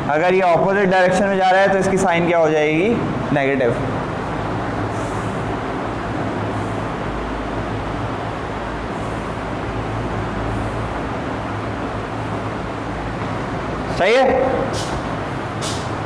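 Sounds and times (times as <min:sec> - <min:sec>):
constant low hum: 0:00.0 - 0:16.0
even hiss: 0:14.5 - 0:16.0
brief higher hisses: 0:14.6 - 0:15.0, 0:15.6 - 0:15.9.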